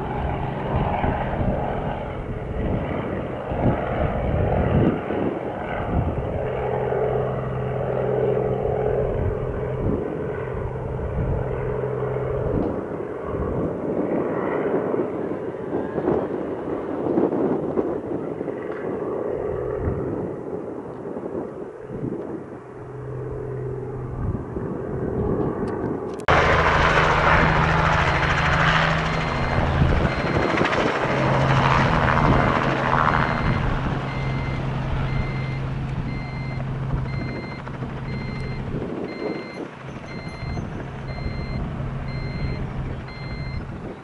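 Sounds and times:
helicopter rotor and engine: 0.0s - 44.0s
short electronic beeps: 29.1s - 30.6s, 33.2s - 43.6s.

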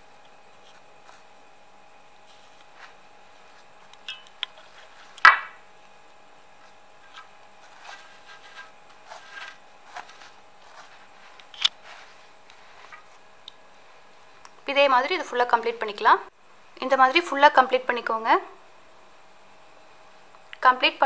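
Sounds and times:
rope rubbing on wood: 0.0s - 5.2s, 6.5s - 13.3s
faint steady hum: 0.0s - 21.0s.

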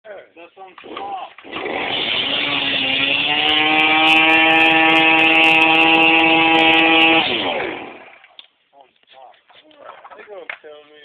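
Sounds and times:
string trimmer engine running: 0.8s - 8.2s.

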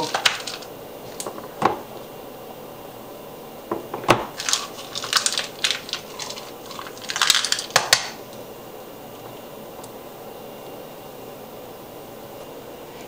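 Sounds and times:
chocolate chunks clinking in ramekin: 0.0s - 0.7s, 4.3s - 8.2s
crackly rustling of crumbs: 0.0s - 2.0s, 4.2s - 8.5s.

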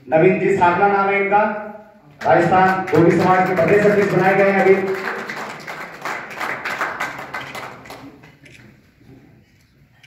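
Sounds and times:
small crowd clapping: 2.2s - 8.5s.

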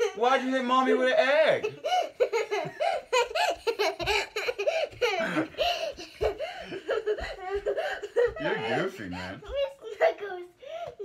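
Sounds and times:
boy laughing: 1.5s - 10.4s
man laughing: 8.2s - 9.3s.

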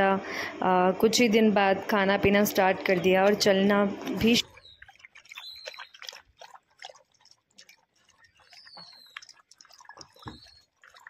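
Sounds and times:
dog lapping water: 2.3s - 11.0s.

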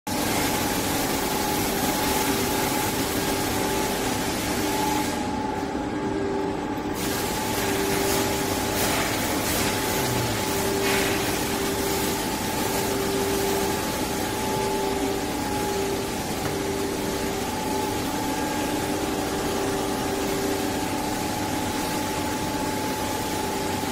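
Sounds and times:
machine humming and hissing: 0.1s - 23.9s
whining rollers: 7.9s - 23.9s.

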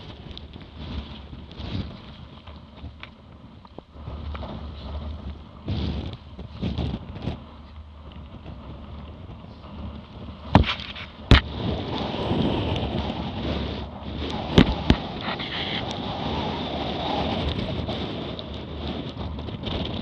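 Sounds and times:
water rushing along hull: 8.4s - 20.0s
waves slapping hull: 8.4s - 20.0s.

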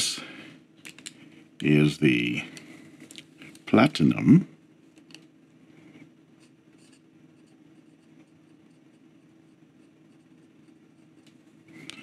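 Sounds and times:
steady low hum: 0.0s - 12.0s
fountain pen scratching on paper: 6.4s - 11.3s.

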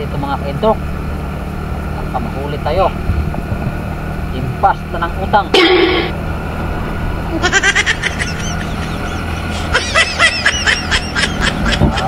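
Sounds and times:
scooter engine running: 0.0s - 12.0s
wind noise: 3.0s - 4.0s.

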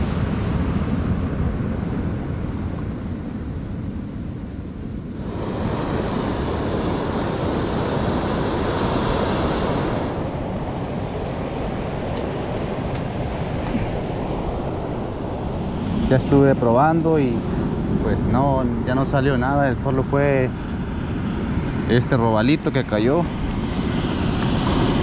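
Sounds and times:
wind buffeting microphone: 0.0s - 25.0s
ocean surf washing over stones: 5.2s - 18.9s, 20.2s - 25.0s.

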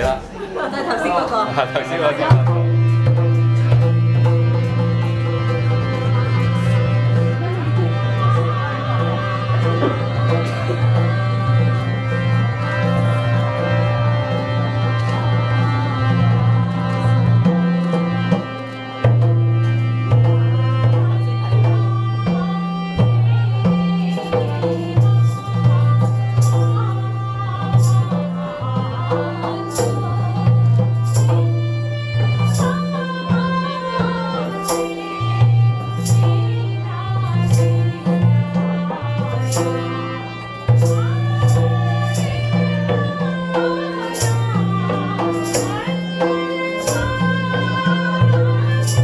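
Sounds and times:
keyboard sustained notes: 0.0s - 49.0s
high percussion strikes: 2.2s - 13.3s, 23.1s - 49.0s
hand drum beat: 2.3s - 13.2s, 17.4s - 49.0s
woman singing: 6.5s - 13.1s, 20.4s - 49.0s.

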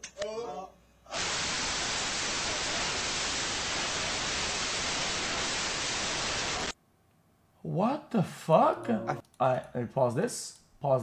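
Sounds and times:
static hiss: 1.1s - 6.8s.

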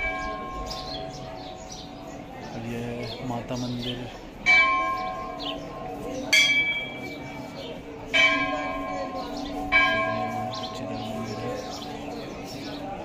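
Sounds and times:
temple bell ringing: 0.0s - 3.4s, 4.4s - 13.0s.

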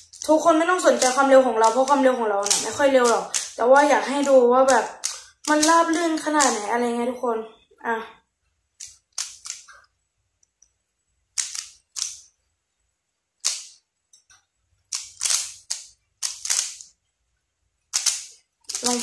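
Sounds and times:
puzzle cube clacking turns: 0.0s - 6.7s, 8.8s - 9.9s, 11.3s - 12.3s, 13.4s - 13.8s, 14.8s - 17.0s, 17.9s - 19.0s.

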